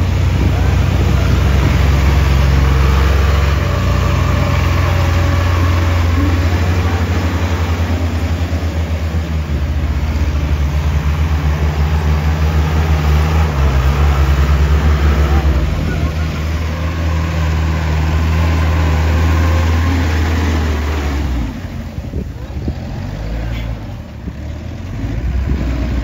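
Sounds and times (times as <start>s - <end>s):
jeep engine chugging: 0.0s - 26.0s.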